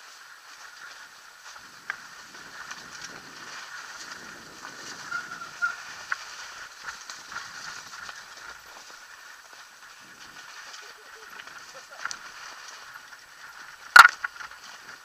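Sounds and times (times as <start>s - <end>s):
bike tyres hissing on snow: 0.0s - 15.0s
bike clicks and knocks: 11.4s - 15.0s.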